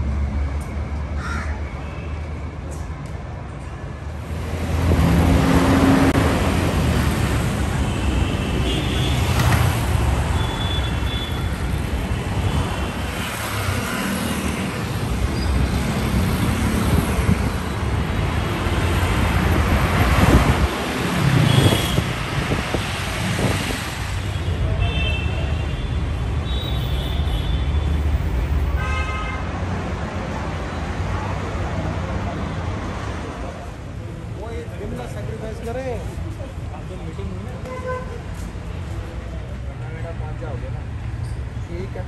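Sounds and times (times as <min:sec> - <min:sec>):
road traffic: 0:00.0 - 0:42.0
vehicle horns tooting: 0:28.8 - 0:29.5.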